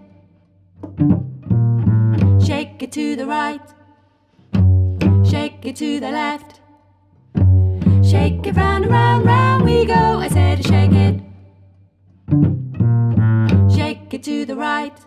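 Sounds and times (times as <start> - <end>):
cello: 0.0 - 15.0
woman singing: 2.4 - 3.9, 5.2 - 6.8, 7.9 - 11.4, 13.7 - 15.0.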